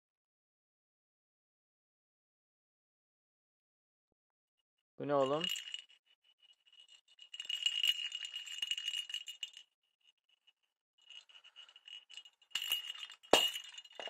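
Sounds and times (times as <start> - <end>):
toy ball rattling: 5.0 - 9.7, 11.0 - 14.0.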